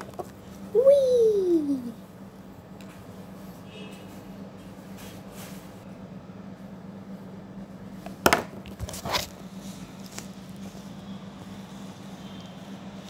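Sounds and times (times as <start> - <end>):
steady low hum: 0.0 - 13.0
plastic toys knocking and rustling: 8.2 - 9.1.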